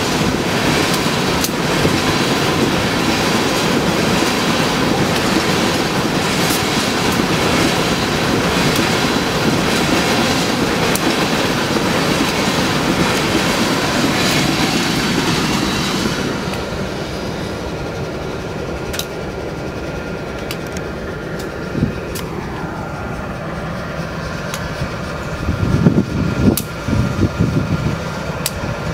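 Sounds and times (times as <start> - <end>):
wheels clicking over rail joints: 0.0 - 15.6, 18.8 - 19.3, 20.2 - 22.4, 28.2 - 28.9
freight train rolling by: 0.0 - 28.9
wind buffeting microphone: 21.4 - 28.9
steady hum with sharp ticks: 28.4 - 28.7.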